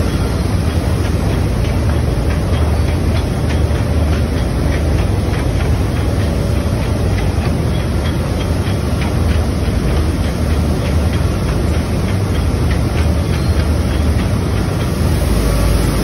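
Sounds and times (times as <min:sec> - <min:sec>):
conveyor machinery rumbling: 0:00.0 - 0:16.0.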